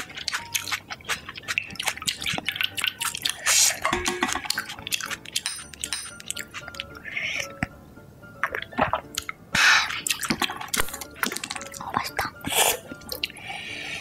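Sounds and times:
chopsticks and dishes clattering: 0:00.0 - 0:07.0
chewing: 0:00.0 - 0:07.5, 0:08.4 - 0:13.4
quiet background music: 0:00.0 - 0:14.0.

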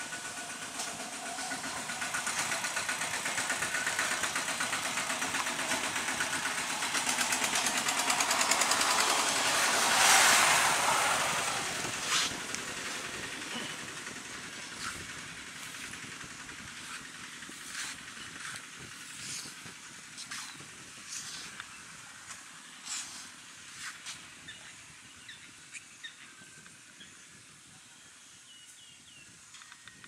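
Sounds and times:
steady outdoor hiss: 0:00.0 - 0:30.0.

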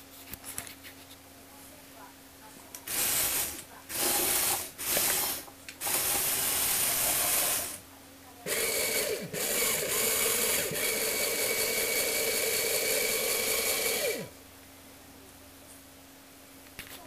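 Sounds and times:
toy vehicle motor whirring: 0:02.9 - 0:07.8, 0:08.5 - 0:14.3.

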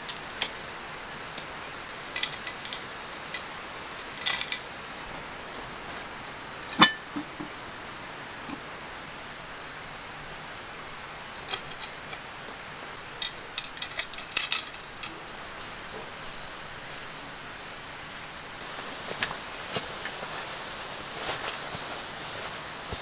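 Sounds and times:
metallic clinking of cooking gear: 0:00.0 - 0:04.7, 0:05.9 - 0:09.0, 0:10.5 - 0:12.3, 0:13.2 - 0:15.2
crickets chirring: 0:00.0 - 0:23.0.

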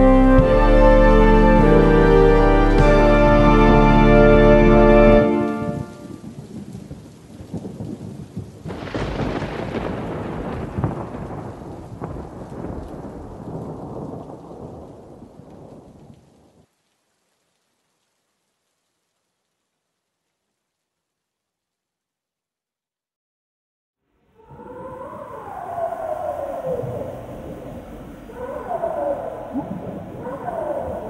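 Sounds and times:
organ-like synth chord: 0:00.0 - 0:05.7
thunder rumbling: 0:00.0 - 0:16.6, 0:24.4 - 0:31.0
rain hiss: 0:00.0 - 0:21.8, 0:24.2 - 0:31.0.

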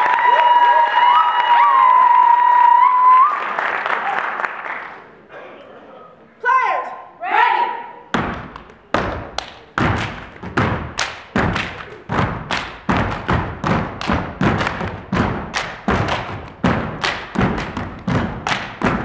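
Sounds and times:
body percussion hits: 0:08.1 - 0:19.0
boot stomps on wooden stage: 0:08.1 - 0:19.0.

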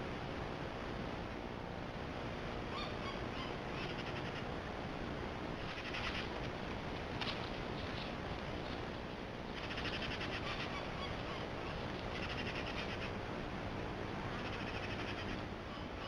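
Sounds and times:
steady hiss: 0:00.0 - 0:15.8
animal chattering call: 0:05.6 - 0:06.3, 0:09.6 - 0:13.2, 0:14.4 - 0:16.0.

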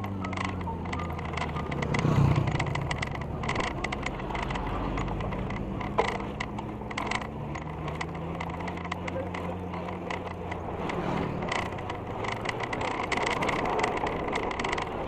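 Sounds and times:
bike rattling and clicking: 0:00.0 - 0:15.0
bike rolling over concrete: 0:00.0 - 0:15.0
low engine hum: 0:00.0 - 0:15.0
loud low rumble: 0:01.6 - 0:05.5.

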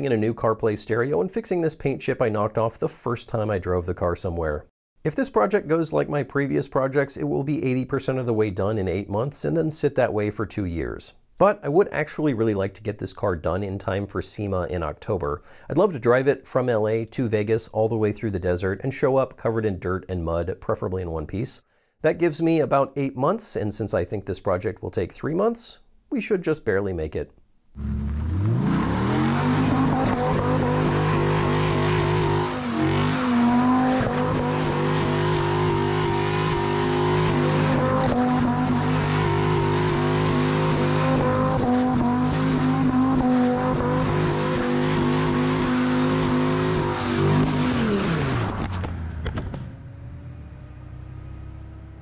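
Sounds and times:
car engine at high revs: 0:27.8 - 0:52.0.

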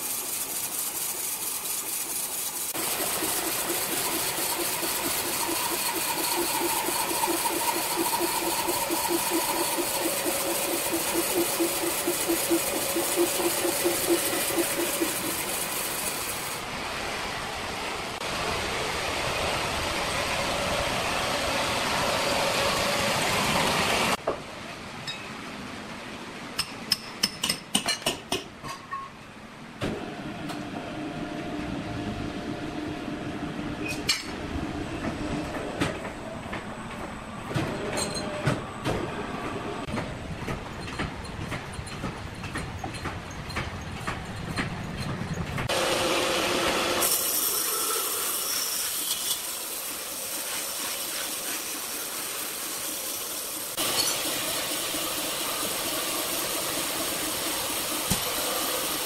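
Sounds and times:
band saw cutting timber: 0:00.0 - 0:16.7, 0:45.7 - 0:59.0
machinery hum: 0:02.8 - 0:24.2, 0:29.9 - 0:40.3.

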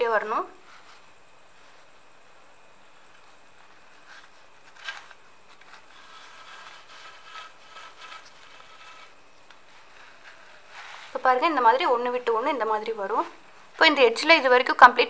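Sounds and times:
rope scraping through wood: 0:03.0 - 0:11.5.

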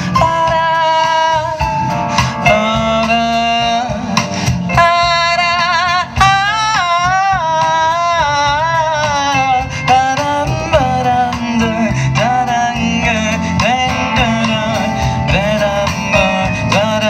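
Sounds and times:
bass guitar: 0:00.0 - 0:17.0
drums: 0:00.0 - 0:17.0
keyboard: 0:00.0 - 0:17.0
woman singing: 0:00.2 - 0:01.6.

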